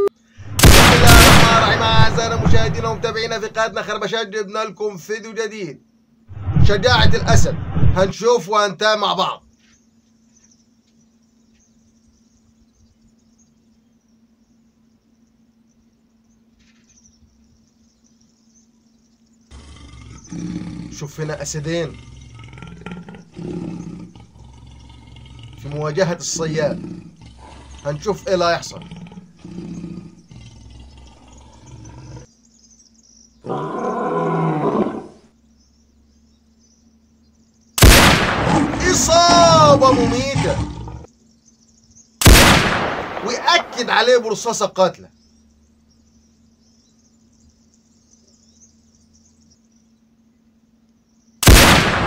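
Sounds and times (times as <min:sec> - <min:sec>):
insect chirping: 0:00.0 - 0:52.0
steady low hum: 0:00.0 - 0:52.0
loud bang: 0:00.4 - 0:03.2
low rumble: 0:00.4 - 0:03.7, 0:06.3 - 0:08.1
lion roaring: 0:00.4 - 0:03.8, 0:06.3 - 0:08.1, 0:19.5 - 0:32.3, 0:33.4 - 0:35.3, 0:37.8 - 0:41.1.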